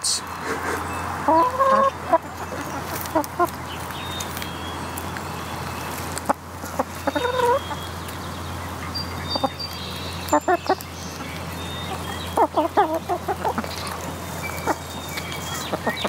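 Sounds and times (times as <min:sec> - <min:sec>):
hens clucking: 0:00.4 - 0:03.9, 0:06.2 - 0:08.1, 0:09.2 - 0:09.7, 0:10.3 - 0:16.0.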